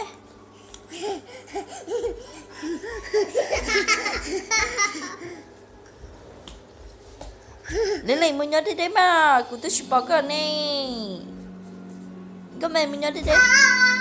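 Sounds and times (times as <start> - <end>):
toddler giggling: 0.9 - 5.4, 7.7 - 8.9.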